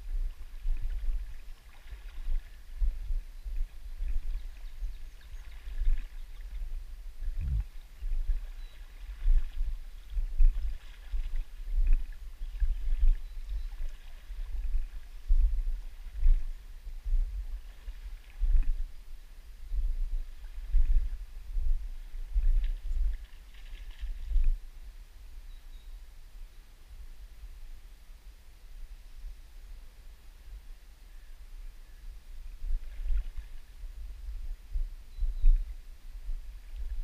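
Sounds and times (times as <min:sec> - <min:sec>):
water sloshing: 0:00.0 - 0:16.6, 0:17.3 - 0:18.9, 0:22.0 - 0:24.6, 0:32.7 - 0:33.7
faint rush of river current: 0:00.0 - 0:25.4.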